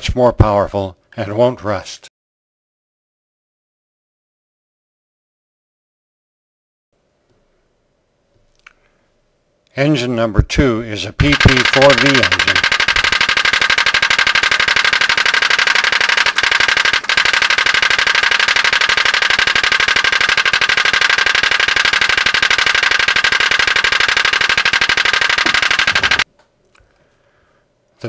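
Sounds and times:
pop-pop boat engine putt-putt: 11.2s - 26.2s.

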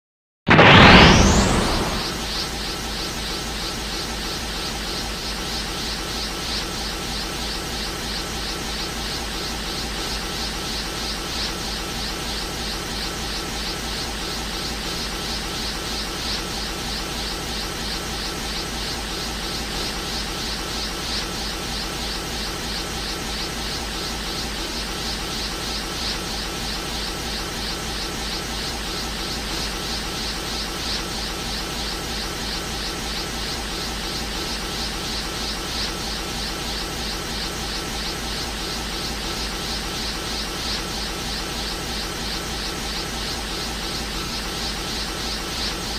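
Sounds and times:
rushing hiss with fast flutter: 0.5s - 13.3s.

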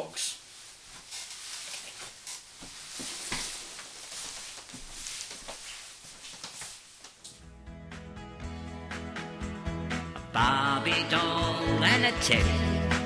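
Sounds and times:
steady hiss: 0.0s - 7.3s
faint rustling and knocks: 0.5s - 7.4s
music: 7.3s - 13.0s.

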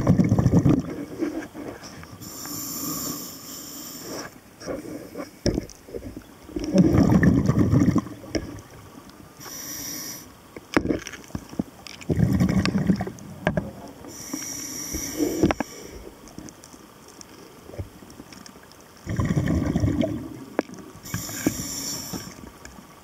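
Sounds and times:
bubbling exhale underwater: 0.0s - 1.4s, 6.5s - 8.7s, 12.1s - 14.3s, 19.0s - 22.3s
hissing inhale through regulator: 1.0s - 5.4s, 9.4s - 10.4s, 14.0s - 16.3s, 21.0s - 22.5s.

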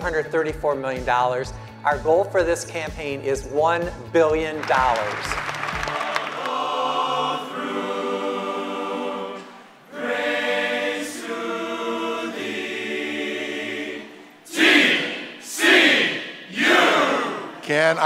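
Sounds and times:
male choir singing: 5.7s - 18.0s
group shout: 14.5s - 17.6s.

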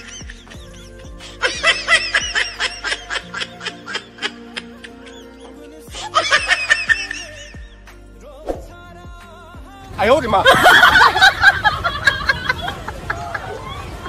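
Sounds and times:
quick rhythmic laughter: 0.0s - 7.8s, 10.3s - 13.5s
background music: 0.0s - 13.0s.

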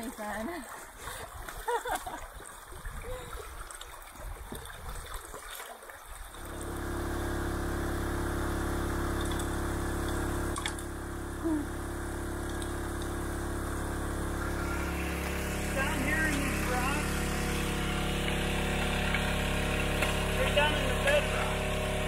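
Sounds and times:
creek water splashing: 0.0s - 7.4s, 11.9s - 22.0s
small water pump engine running: 6.1s - 22.0s
water rushing: 11.9s - 22.0s.

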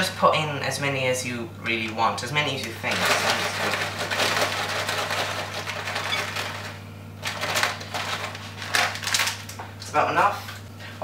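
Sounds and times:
plastic bag crinkling: 2.7s - 9.7s.

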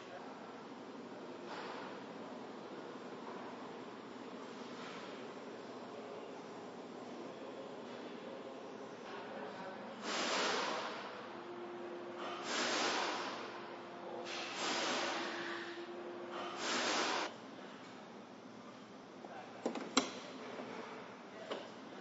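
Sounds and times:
hiss bursts: 10.0s - 11.0s, 12.4s - 13.4s, 14.3s - 15.8s, 16.6s - 17.3s.

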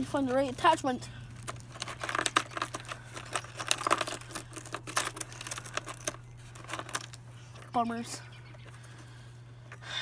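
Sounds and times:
metal bits rattling in plastic case: 0.3s - 7.8s.

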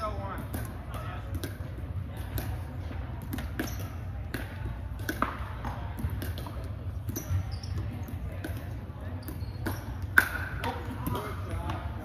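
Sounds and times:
balls bouncing on wooden floor: 0.0s - 12.0s
paddles hitting balls: 0.0s - 12.0s.

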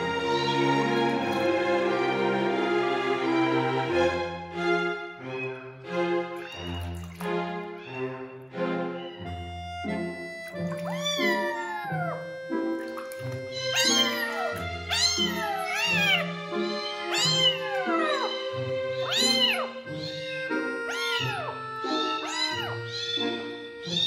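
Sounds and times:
background music: 0.0s - 24.0s
kitten meowing: 6.4s - 7.2s, 10.4s - 24.0s.

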